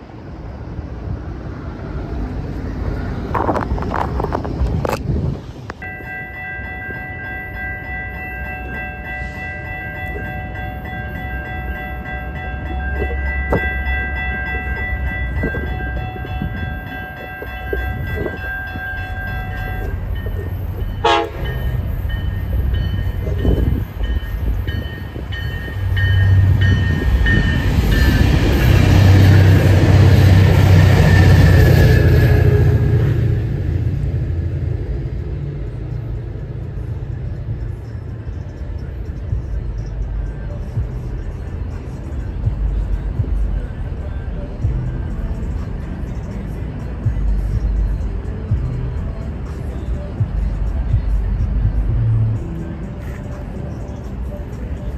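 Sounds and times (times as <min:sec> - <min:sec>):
train rumble: 0:00.0 - 0:54.9
train horn chord: 0:21.0 - 0:21.8.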